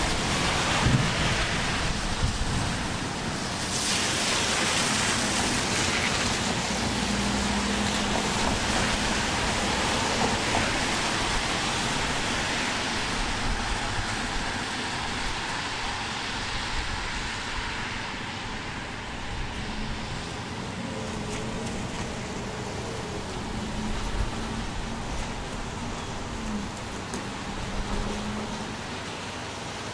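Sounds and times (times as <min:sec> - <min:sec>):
cars swishing on wet road: 0:00.0 - 0:29.9
heavy rain hissing: 0:00.0 - 0:29.9.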